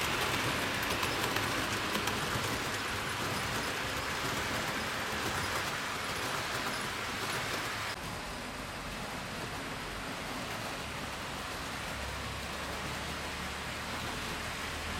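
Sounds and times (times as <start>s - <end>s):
model train wheels rolling on track: 0.0s - 14.9s.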